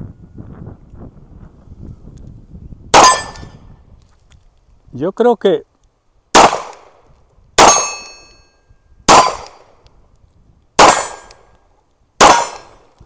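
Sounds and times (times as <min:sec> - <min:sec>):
pistol shots: 0:03.0 - 0:03.5, 0:06.3 - 0:07.0, 0:07.6 - 0:08.3, 0:09.1 - 0:09.8, 0:10.8 - 0:11.5, 0:12.2 - 0:13.0
steel target clanging: 0:03.0 - 0:03.6, 0:07.6 - 0:08.6, 0:10.8 - 0:11.5.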